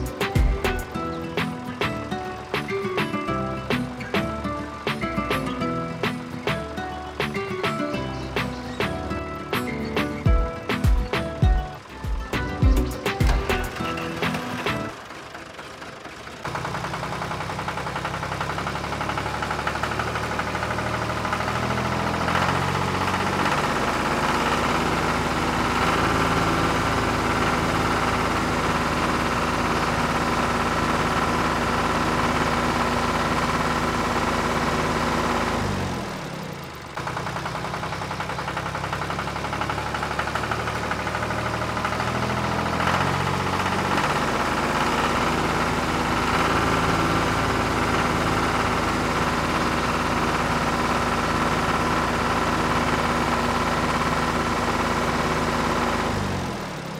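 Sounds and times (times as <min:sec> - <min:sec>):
toy tractor engine chugging: 0:00.0 - 0:56.9.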